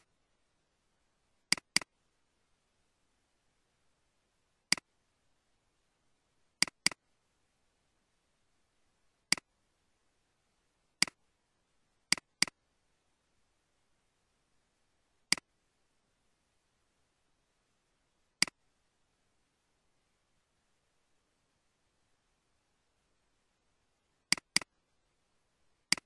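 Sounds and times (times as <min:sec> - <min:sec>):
computer mouse clicks: 0:01.5 - 0:01.9, 0:04.7 - 0:04.9, 0:06.6 - 0:07.0, 0:09.3 - 0:09.5, 0:11.0 - 0:11.2, 0:12.1 - 0:12.6, 0:15.3 - 0:15.5, 0:24.3 - 0:24.7.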